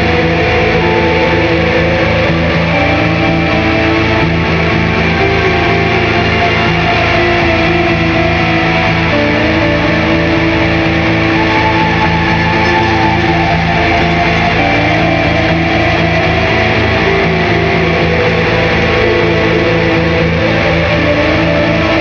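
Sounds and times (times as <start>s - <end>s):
experimental drone music: 0.0s - 22.0s.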